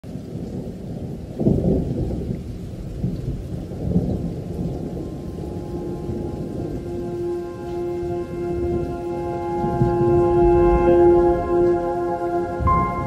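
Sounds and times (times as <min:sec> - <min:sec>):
rain: 0:00.0 - 0:13.0
rolling thunder: 0:00.0 - 0:13.0.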